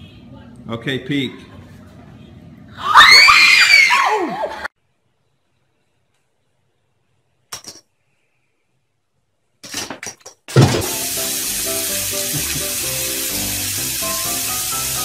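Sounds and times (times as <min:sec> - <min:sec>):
music playing: 0:10.8 - 0:15.0.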